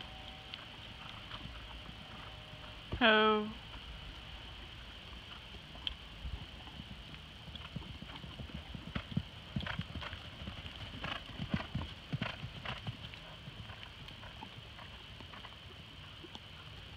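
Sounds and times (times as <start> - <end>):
horse hoofbeats on sand: 6.3 - 15.6.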